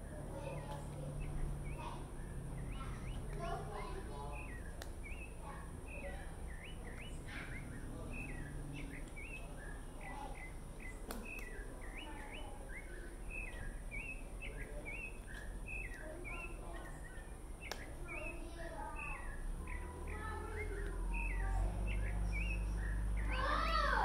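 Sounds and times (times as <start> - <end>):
low steady background rumble: 0.0 - 24.0
small birds chirping: 0.0 - 24.0.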